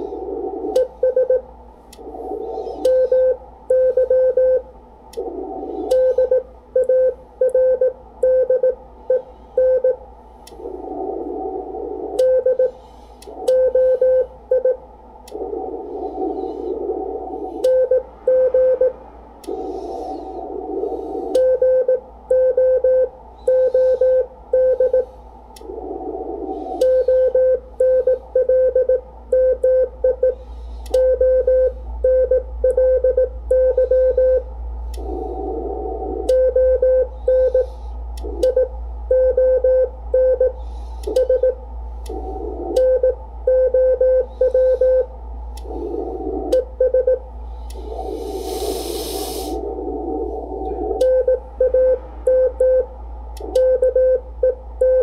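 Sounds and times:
radio band hiss: 0.0 - 1.0, 15.3 - 18.3, 47.8 - 52.2
morse code beeps: 0.7 - 1.5, 2.7 - 4.7, 5.9 - 10.0, 38.4 - 41.6, 46.5 - 47.2, 50.9 - 52.9, 53.5 - 55.0
faint clicks: 41.0 - 41.3.

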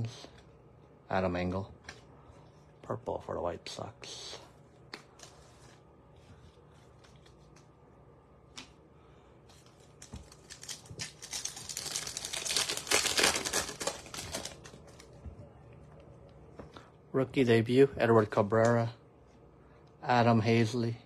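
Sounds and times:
foil pack crinkling and tearing: 9.7 - 15.2.

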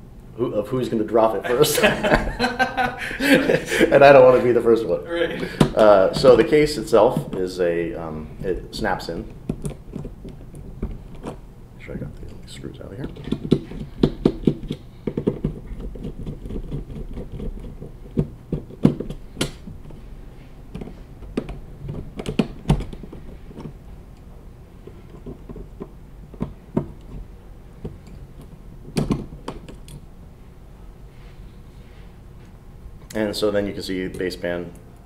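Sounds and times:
smartphone parts clicking and tapping: 13.1 - 20.0.

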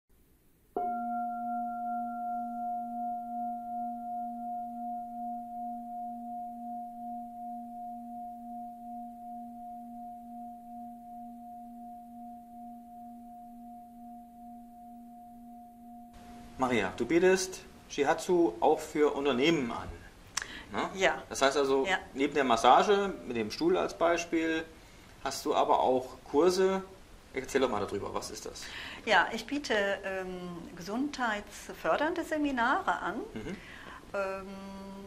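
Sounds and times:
singing bowl ringing: 0.8 - 17.8.

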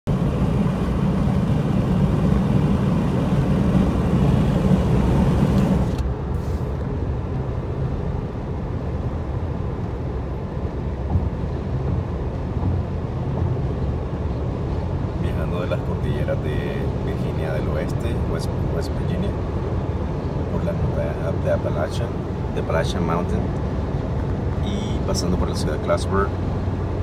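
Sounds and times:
road and engine noise inside car: 0.1 - 27.0.

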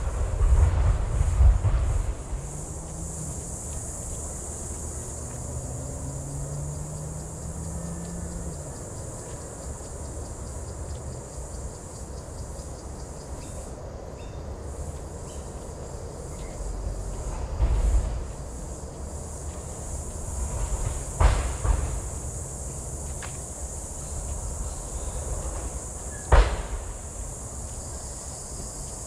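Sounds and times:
insects droning: 0.0 - 29.0
faint ticks: 6.5 - 11.2, 23.0 - 23.5.

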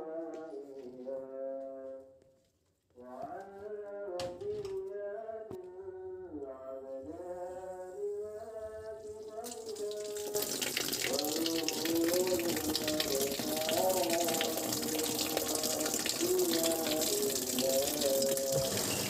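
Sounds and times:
water rushing through a hose: 9.3 - 19.0.

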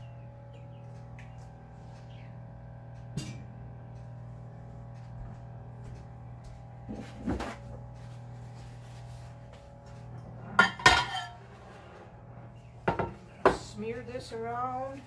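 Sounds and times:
steady low hum: 0.0 - 15.0
glass dish knocking on countertop: 12.9 - 13.6.

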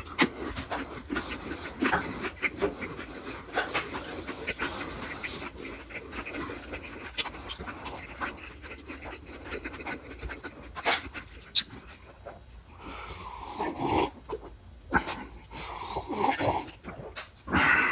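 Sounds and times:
chewing with wet mouth clicks: 0.0 - 17.5
sipping and swallowing: 0.0 - 17.9
heavy breathing through nose: 12.7 - 13.7, 17.5 - 17.9.

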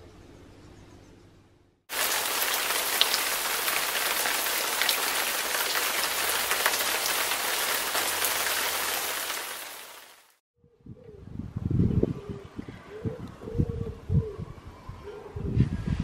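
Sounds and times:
heavy rain hissing: 1.9 - 10.4.

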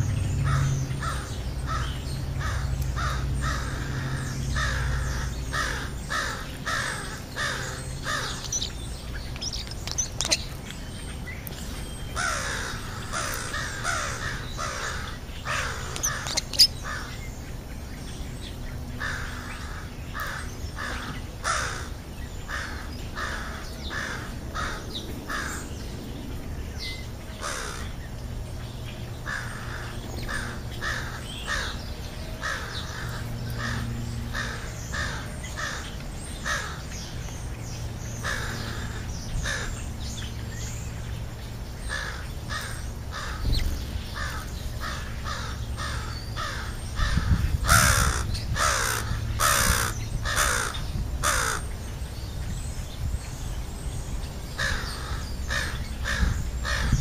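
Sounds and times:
steady low rumble: 0.0 - 57.0
crows cawing: 0.4 - 8.6, 12.2 - 17.2, 19.0 - 25.7, 27.4 - 28.0, 29.2 - 37.0, 38.2 - 39.8, 41.8 - 51.7, 54.6 - 57.0.

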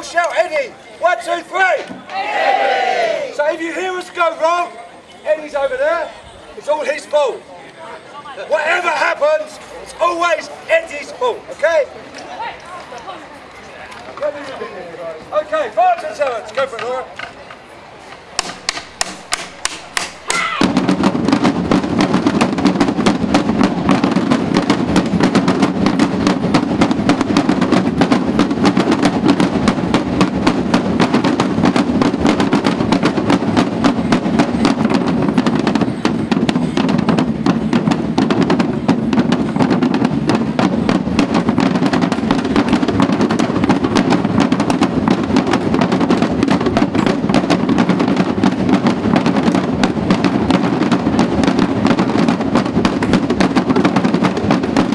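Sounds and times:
drum band playing: 18.4 - 54.9.

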